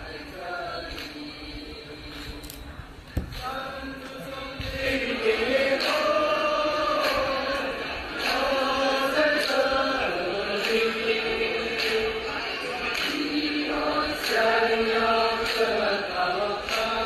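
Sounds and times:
group singing in unison: 0.0s - 17.0s
hand claps: 0.9s - 1.2s, 2.1s - 2.5s, 5.7s - 6.2s, 6.9s - 12.2s, 12.9s - 14.6s, 15.4s - 17.0s.

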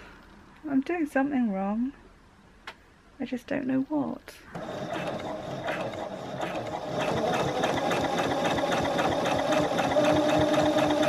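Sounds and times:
sewing machine motor hum: 4.5s - 11.0s
sewing machine needle patter: 4.6s - 11.0s.

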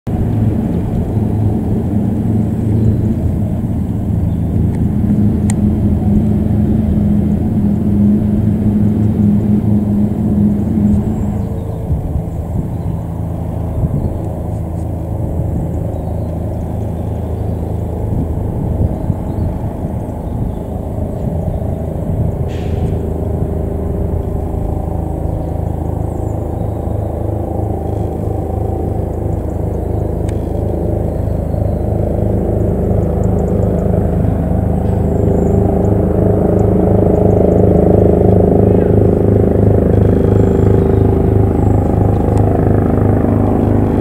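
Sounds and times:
helicopter rotor drone: 0.1s - 44.0s.

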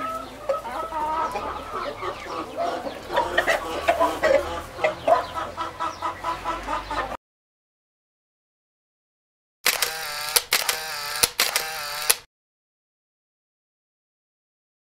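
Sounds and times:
chickens clucking: 0.0s - 7.2s
chickens pecking clicks: 9.7s - 12.3s.

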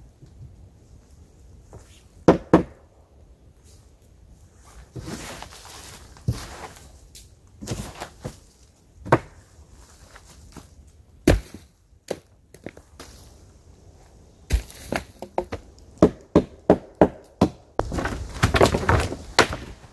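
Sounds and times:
footsteps in dry leaves: 4.5s - 8.8s, 12.8s - 15.2s.

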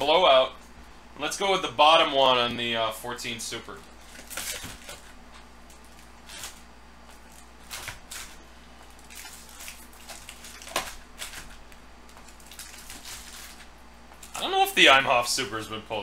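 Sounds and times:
foil packs crinkling: 4.0s - 14.5s.

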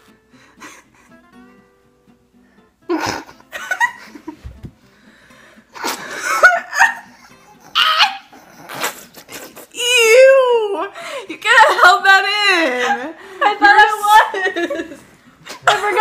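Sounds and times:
girls laughing: 2.9s - 4.4s, 5.8s - 9.2s, 11.5s - 16.0s.

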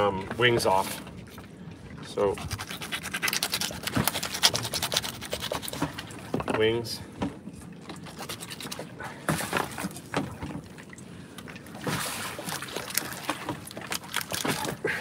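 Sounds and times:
wet handling of fish on board: 0.0s - 15.0s
knife cutting fish fins: 2.4s - 6.1s.

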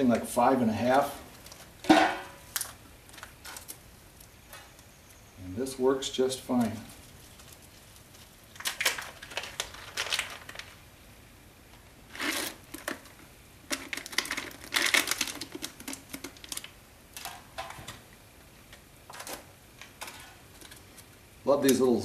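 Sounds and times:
plastic bag crinkling: 6.9s - 10.9s, 12.1s - 17.4s.

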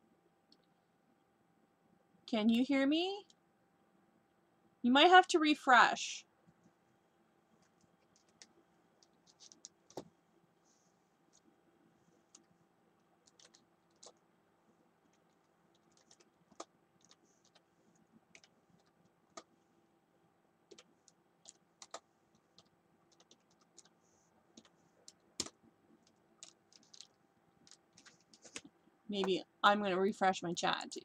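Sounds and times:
faint steady hum: 0.0s - 31.0s
typing on computer keyboard: 7.6s - 10.0s, 13.2s - 14.2s, 15.1s - 17.6s, 18.3s - 19.5s, 20.7s - 24.0s, 24.6s - 28.7s.

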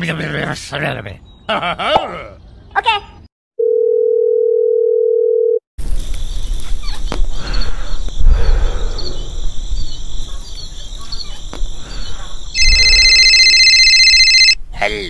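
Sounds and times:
small birds chirping: 5.8s - 13.4s
telephone beep: 12.6s - 14.6s.

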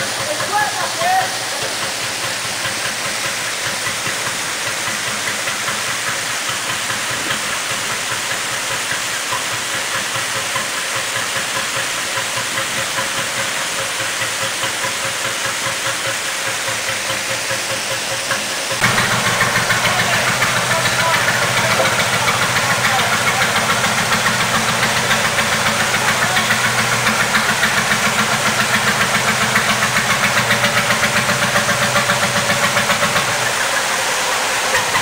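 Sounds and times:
boat engine low beat: 0.0s - 35.0s
water pouring through lock gate: 0.0s - 35.0s.

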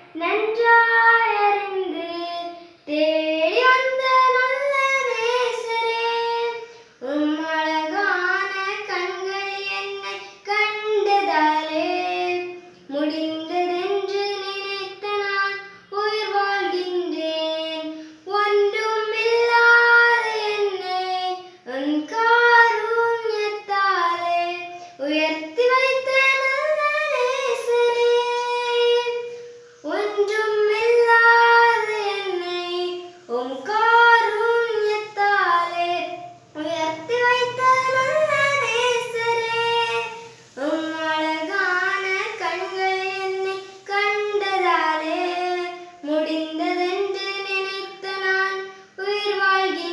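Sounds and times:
girl singing a hymn: 0.0s - 49.9s.

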